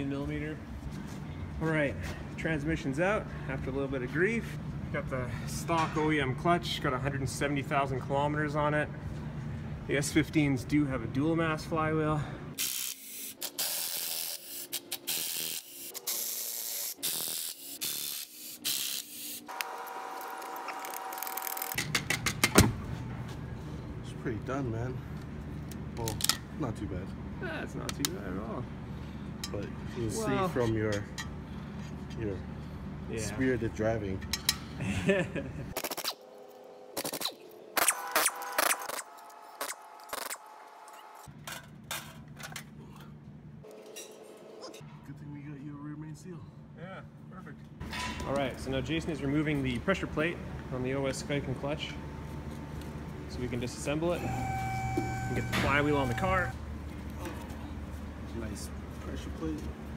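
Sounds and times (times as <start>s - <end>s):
electric ratchet whirring: 12.6s - 21.8s, 54.2s - 56.5s.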